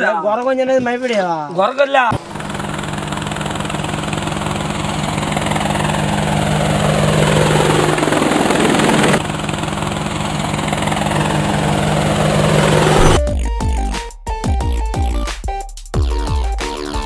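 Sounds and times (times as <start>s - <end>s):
drone rotors buzzing: 10.7s - 13.2s
falling whoosh: 11.1s - 13.2s.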